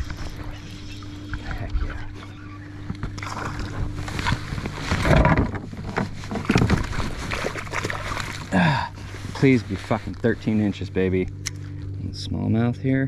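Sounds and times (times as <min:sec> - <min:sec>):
steady low hum: 0:00.0 - 0:13.0
water splashing: 0:03.0 - 0:09.2.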